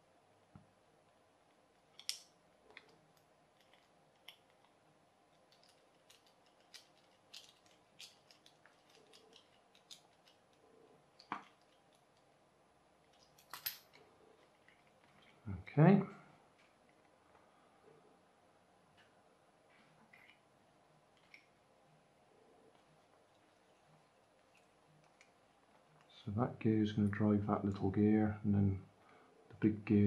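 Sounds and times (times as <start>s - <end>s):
screwdriver clicking in plastic: 5.5s - 10.5s.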